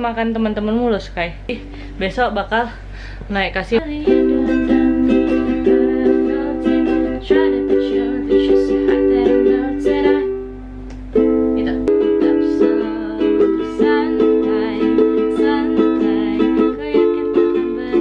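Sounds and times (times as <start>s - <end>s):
ukulele strumming chords: 3.8s - 18.0s.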